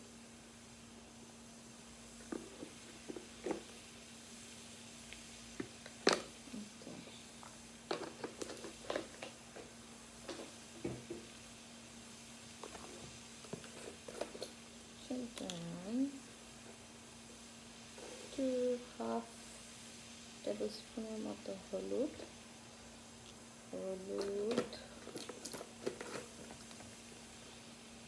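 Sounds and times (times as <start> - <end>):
faint steady hum: 0.0 - 28.0
plastic spoon scraping and tapping: 7.9 - 11.2, 24.2 - 26.8.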